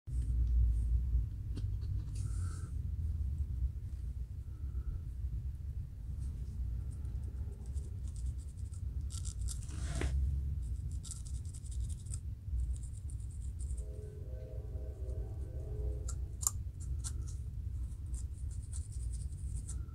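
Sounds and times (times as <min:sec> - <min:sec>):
low hum: 0:00.1 - 0:19.9
musical tones: 0:13.8 - 0:16.4
comb scratching scalp: 0:16.4 - 0:19.9.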